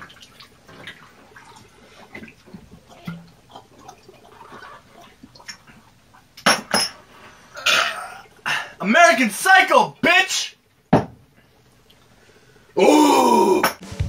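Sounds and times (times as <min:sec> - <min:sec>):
liquid trickling and dripping: 0:00.0 - 0:08.7, 0:11.4 - 0:12.8
glasses clinking: 0:06.4 - 0:07.0
men gulping shots: 0:07.5 - 0:08.7
glass stack knocking on bar: 0:10.9 - 0:11.2.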